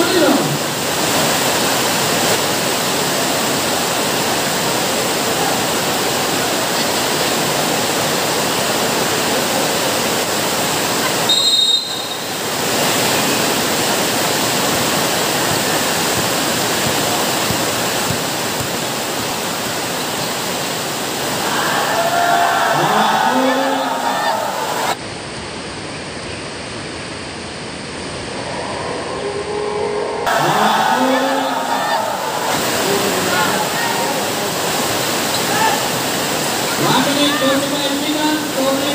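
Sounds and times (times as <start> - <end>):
short high whistle: 11.3 - 12.3
crowd shouting and cheering: 21.3 - 25.0, 28.5 - 34.5, 36.7 - 38.9.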